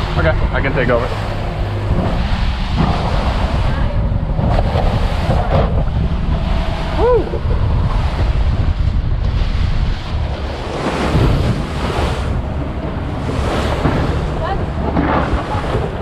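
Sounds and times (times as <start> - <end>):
water rushing along hull: 0.0 - 16.0
wind buffeting microphone: 0.0 - 16.0.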